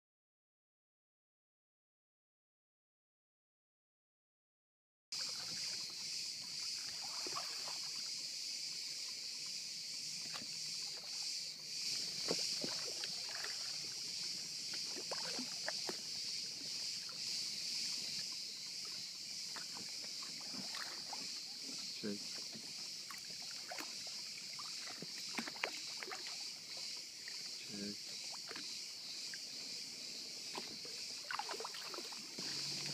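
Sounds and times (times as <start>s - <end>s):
water splashing: 5.2s - 8.4s, 10.0s - 32.9s
cicadas buzzing: 5.2s - 32.9s.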